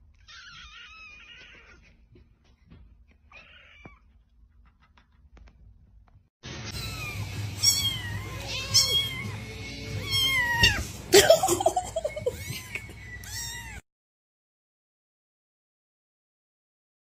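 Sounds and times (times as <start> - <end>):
cat meowing: 0.2 - 1.8, 3.3 - 4.1, 6.7 - 10.9, 12.3 - 13.8.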